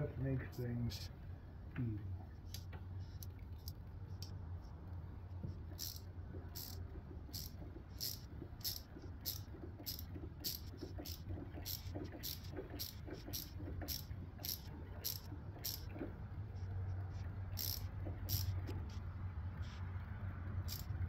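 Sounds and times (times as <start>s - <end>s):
steady low hum: 0.0s - 21.0s
hand ratchet clicking: 5.7s - 15.9s, 17.6s - 18.8s, 20.6s - 21.0s.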